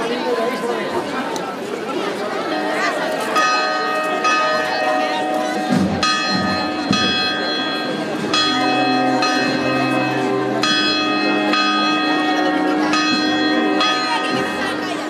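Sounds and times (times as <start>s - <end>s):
church bells ringing: 2.4s - 15.0s.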